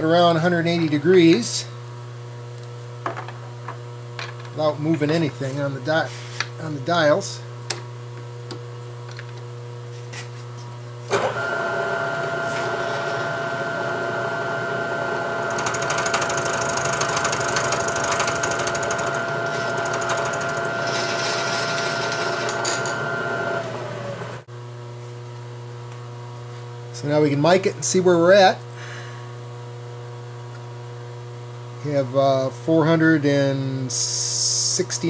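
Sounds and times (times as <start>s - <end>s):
milling machine whine: 11.1s - 24.5s
harsh metal cutting noise: 11.2s - 24.4s.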